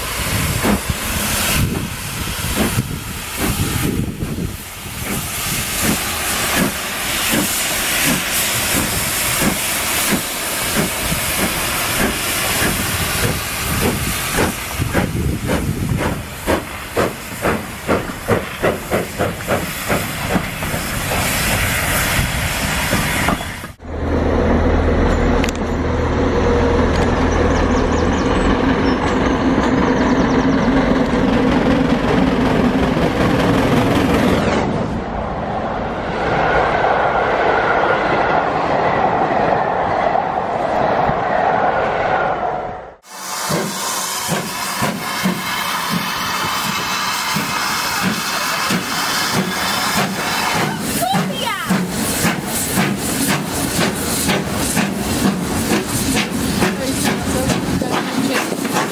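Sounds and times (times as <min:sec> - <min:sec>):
steam hissing: 0:00.0 - 0:23.8, 0:43.0 - 0:58.9
steam locomotive exhaust beats: 0:00.0 - 0:34.5, 0:43.0 - 0:58.9
train wheel noise: 0:00.0 - 0:42.3, 0:43.0 - 0:58.9.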